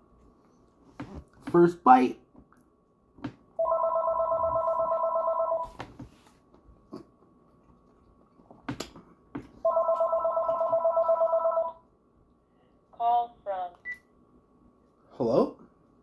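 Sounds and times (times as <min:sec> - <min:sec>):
telephone ringing with electronic trill: 0:03.6 - 0:05.7, 0:09.7 - 0:11.8.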